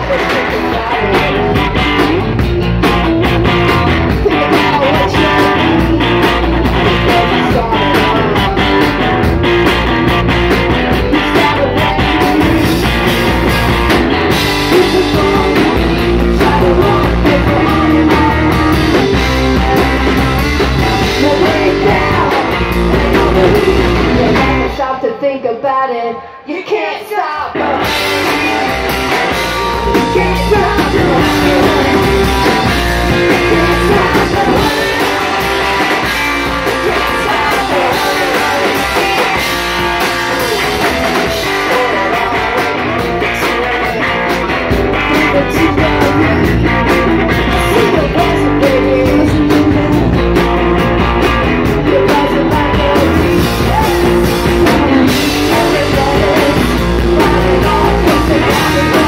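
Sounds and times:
bass guitar: 0.0s - 25.2s, 27.4s - 59.0s
electric guitars: 0.0s - 25.4s, 27.4s - 59.0s
drums: 0.0s - 59.0s
women singing: 20.9s - 39.6s.

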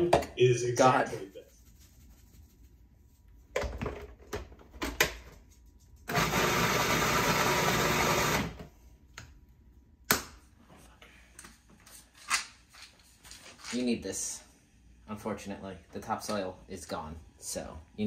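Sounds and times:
food processor running: 6.1s - 8.6s.

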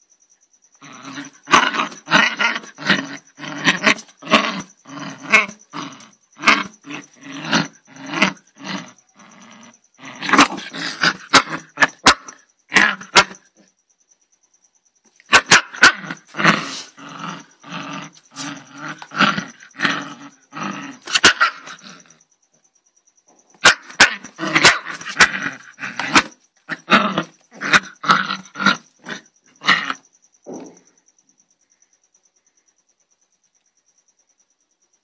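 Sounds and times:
small dog growling and barking: 0.8s - 13.7s, 15.2s - 22.2s, 23.5s - 31.0s.

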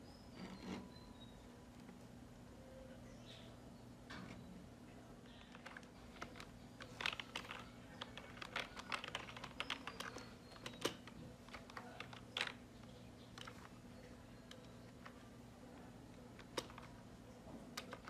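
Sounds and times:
faint low hum: 0.0s - 18.0s
computer keyboard typing: 5.3s - 13.7s, 17.8s - 18.0s.

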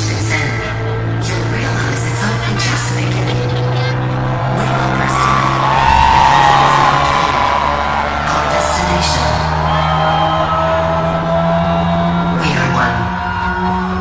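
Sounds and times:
electronic dance music: 0.0s - 14.0s
crowd whooping: 3.8s - 14.0s.

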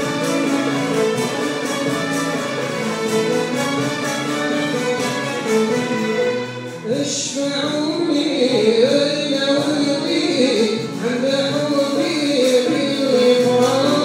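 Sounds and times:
symphony orchestra playing: 0.0s - 14.0s
solo voice singing: 6.8s - 14.0s.

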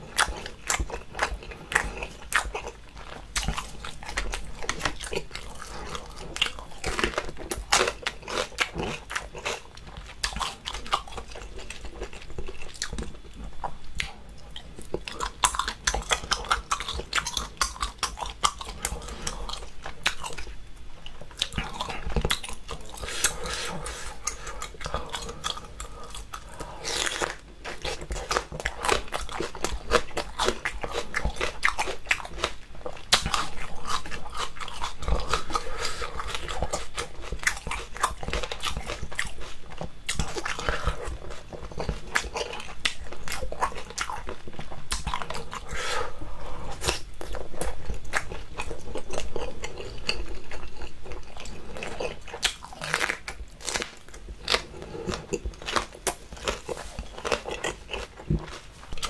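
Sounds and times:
crunching chili pepper: 46.8s - 59.0s.

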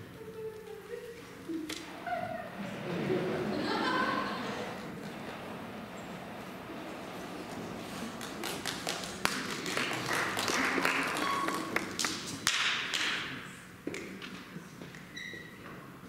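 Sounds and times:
light scattered applause: 7.4s - 13.4s.

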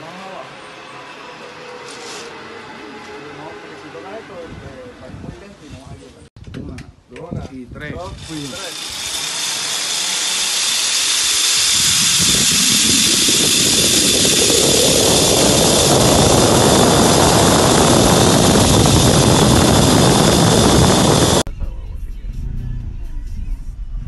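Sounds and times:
wind buffeting microphone: 4.4s - 8.4s, 11.4s - 21.5s
zipline trolley whirring on cable: 8.0s - 21.5s.

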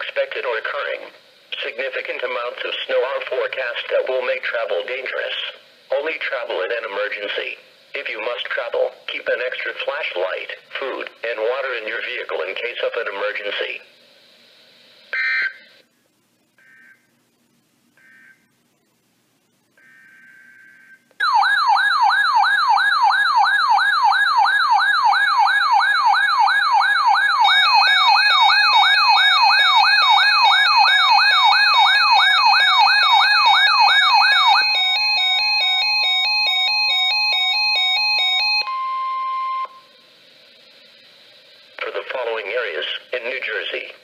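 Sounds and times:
data header burst: 16.4s - 17.3s
steady and pulsing beeps: 16.4s - 42.2s
fast wailing siren: 19.8s - 39.0s.

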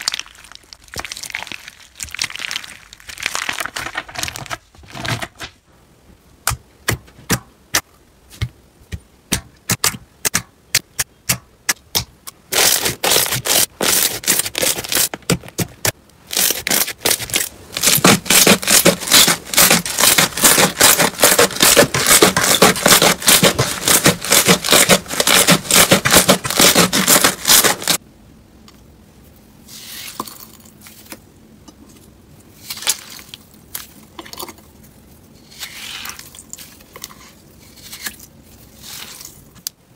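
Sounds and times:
slime squishing: 0.0s - 4.5s, 11.9s - 28.0s
crunchy slime crackling: 0.0s - 4.6s, 12.5s - 28.0s.

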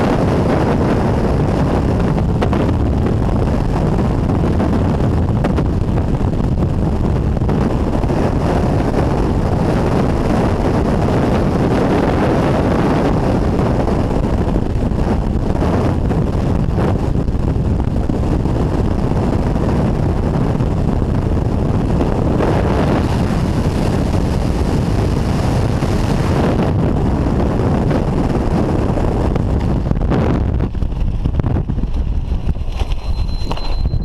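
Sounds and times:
wind rushing over microphone: 0.0s - 34.0s
faint high whistle: 33.0s - 34.0s.

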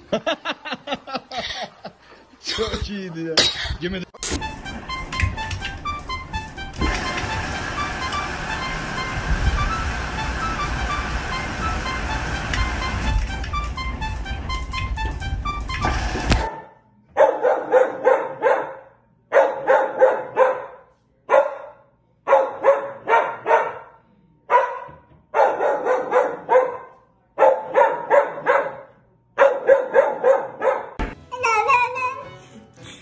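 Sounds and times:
music: 4.2s - 16.5s, 31.0s - 33.0s
dog barking: 16.5s - 31.0s.

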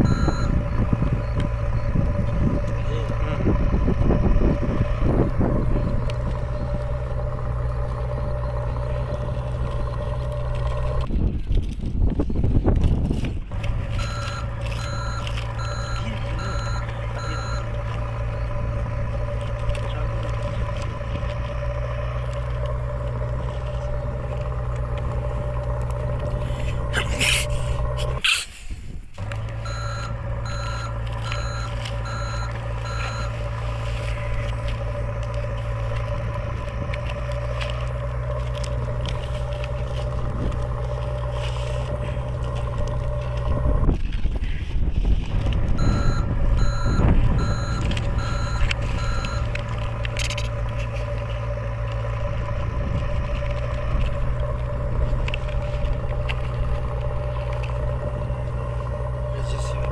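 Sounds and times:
reversing alarm beeping: 0.0s - 2.1s, 13.9s - 18.5s, 29.6s - 34.0s, 45.8s - 49.7s
diesel engine running: 0.0s - 59.9s.

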